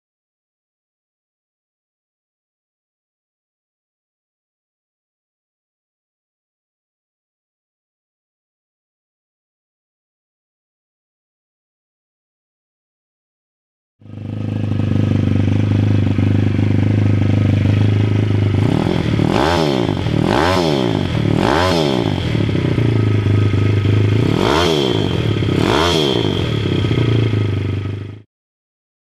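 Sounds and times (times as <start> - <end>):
motorbike engine idling and revving: 14.0 - 28.3.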